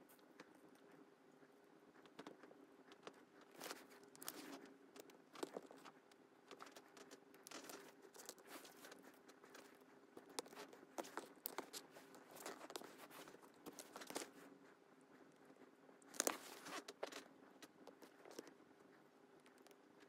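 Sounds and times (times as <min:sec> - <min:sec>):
light clicks and taps: 0:00.0 - 0:14.5
faint steady hum: 0:00.0 - 0:20.0.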